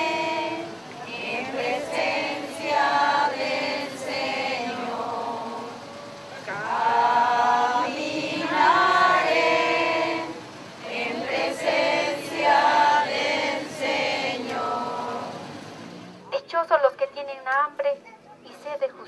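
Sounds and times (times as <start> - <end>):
group singing without instruments: 0.0 - 16.0.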